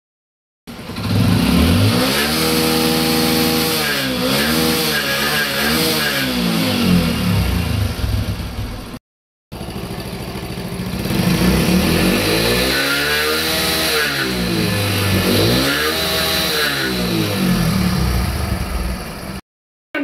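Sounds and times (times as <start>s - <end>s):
motorcycle engine revving: 0.7s - 19.4s.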